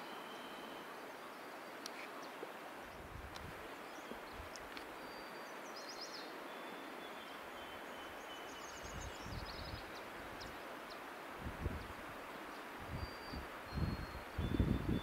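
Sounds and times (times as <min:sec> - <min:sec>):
steady background hiss: 0:00.0 - 0:15.0
songbirds trilling: 0:03.7 - 0:11.1.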